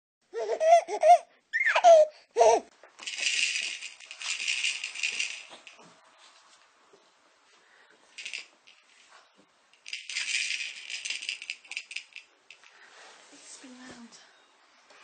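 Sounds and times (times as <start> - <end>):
baby laughing: 0.3 - 2.7
toy rattle shaking: 3.0 - 5.9, 8.1 - 12.8.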